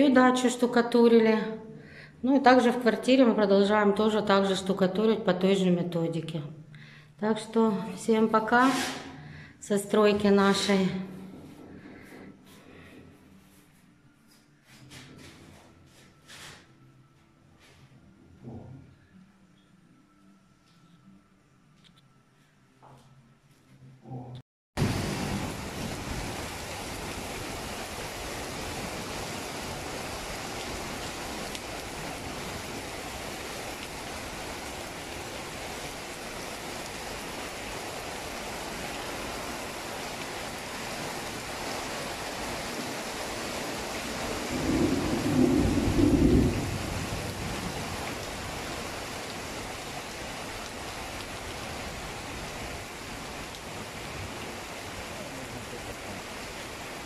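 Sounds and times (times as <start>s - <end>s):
rain falling: 24.8s - 57.0s
low rumble of thunder: 44.1s - 48.7s.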